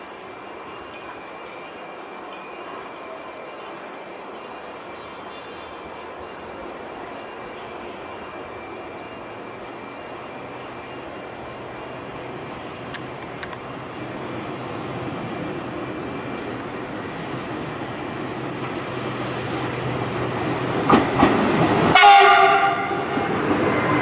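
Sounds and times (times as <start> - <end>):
electric train rumbling: 0.0 - 24.0
sharp clicks: 12.8 - 13.7.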